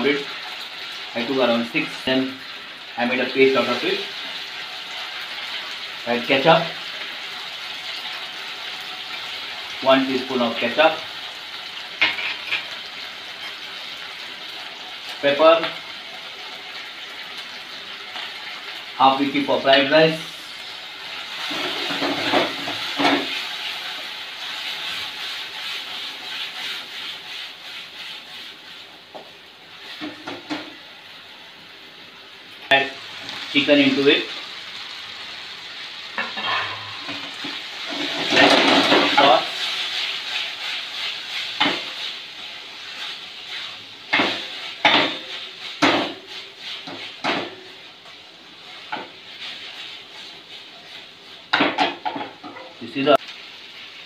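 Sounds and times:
sauce sizzling in pan: 0.0s - 54.0s
spatula scraping pan: 12.0s - 12.8s, 21.4s - 28.9s, 36.2s - 42.2s, 42.9s - 52.8s.

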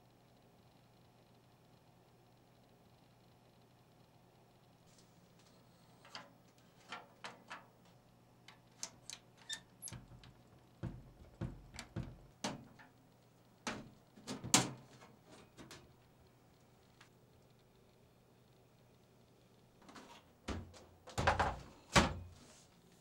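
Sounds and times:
dull thuds: 10.1s - 12.6s.

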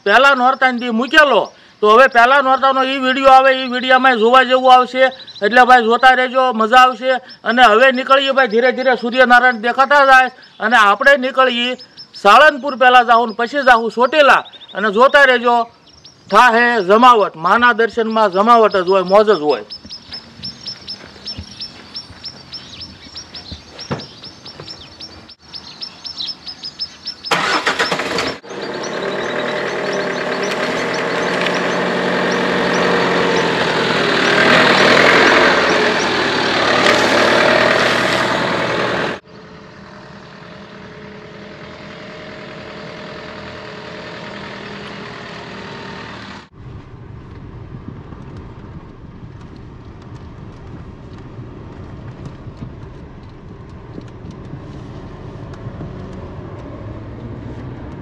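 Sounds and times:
birds chirping: 0.0s - 38.4s
vehicle driving on road: 0.0s - 58.0s.

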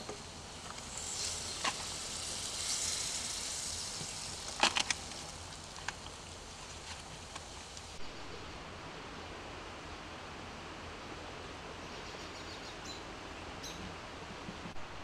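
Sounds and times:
butter sizzling in a frying pan: 0.0s - 8.0s.

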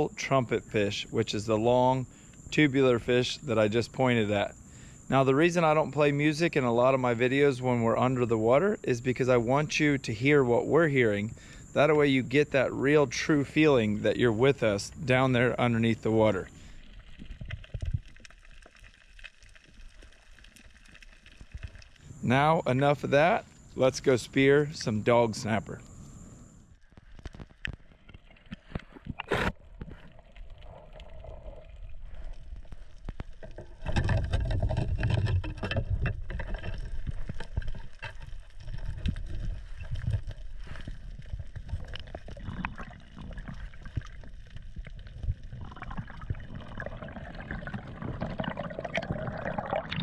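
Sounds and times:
water rushing underwater: 28.3s - 50.0s.

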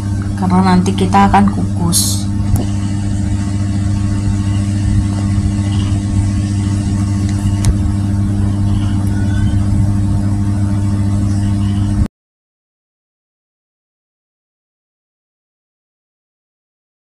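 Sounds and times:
steady low hum: 0.0s - 12.1s.

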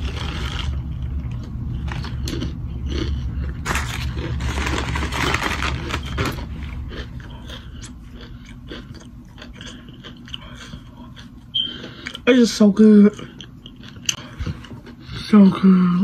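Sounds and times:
paper cup rustling and scraping: 3.6s - 6.4s.

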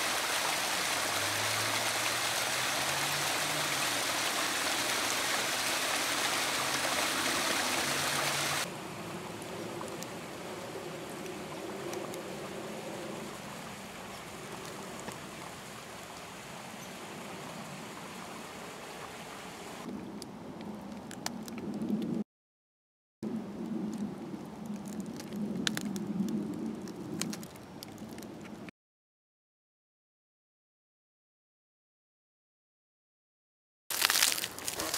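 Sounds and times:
stream trickling over rocks: 0.0s - 20.0s, 33.9s - 34.9s
faint crackles: 23.3s - 28.7s, 33.9s - 34.9s.

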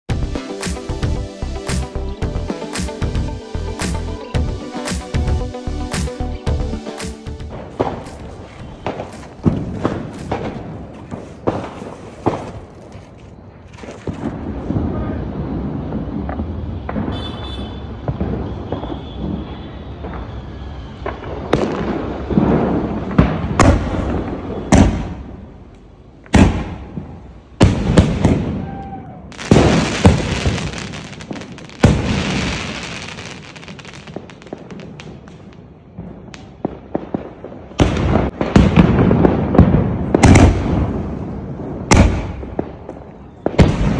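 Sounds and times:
fireworks bursting with bangs: 0.1s - 25.4s, 26.3s - 43.9s
fireworks hissing: 6.9s - 12.7s, 29.4s - 35.5s.

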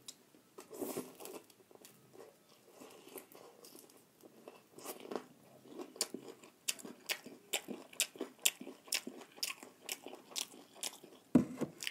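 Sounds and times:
person chewing crispy chicken: 2.8s - 11.9s.

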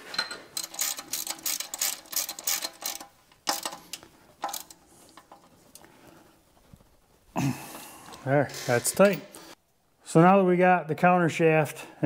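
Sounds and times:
ratchet wrench clicking: 0.6s - 4.8s.

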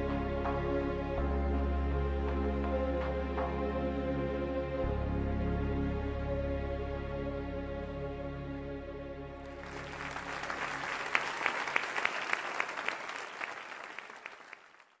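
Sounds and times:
audience applause: 9.5s - 15.0s.

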